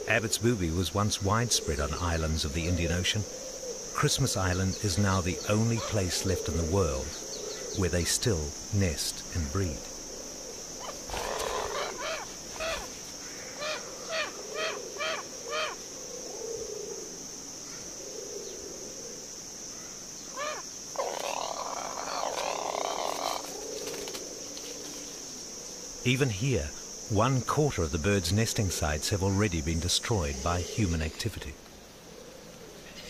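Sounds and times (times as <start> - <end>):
high insect drone: 0.0 - 33.0
harsh rasping call: 10.8 - 15.8, 20.4 - 23.5
short repeated bird calls: 10.8 - 15.8.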